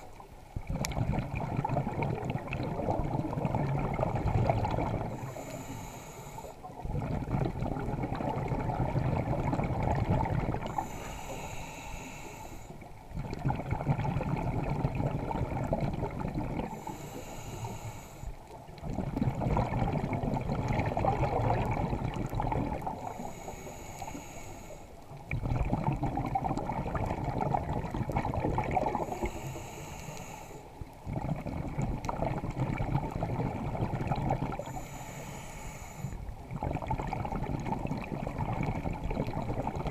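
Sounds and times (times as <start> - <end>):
exhaled bubbles rumbling: 0.0 - 5.6, 6.6 - 11.1, 12.7 - 17.0, 18.4 - 23.4, 25.0 - 29.6, 30.7 - 34.9, 36.2 - 39.9
diver inhaling through regulator: 4.8 - 6.8, 10.6 - 12.9, 16.6 - 18.5, 22.8 - 25.1, 28.8 - 30.8, 34.5 - 36.4.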